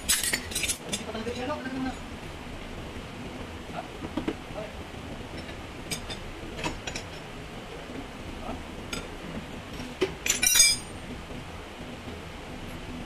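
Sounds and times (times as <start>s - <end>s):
ringing metal clinks: 10.3s - 10.9s.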